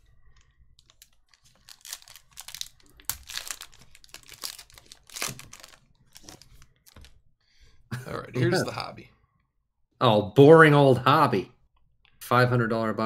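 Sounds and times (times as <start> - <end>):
foil wrapper crinkling and tearing: 0.8 - 7.2.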